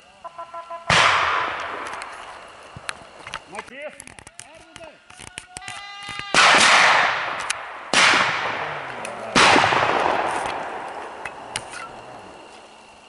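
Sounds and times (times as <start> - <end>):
shotgun shots with long echo: 0.9 - 2.8, 6.3 - 11.7.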